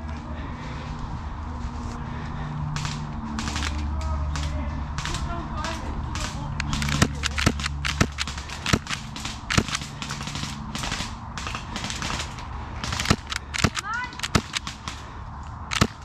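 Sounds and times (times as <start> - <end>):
airsoft guns firing: 2.7 - 16.0.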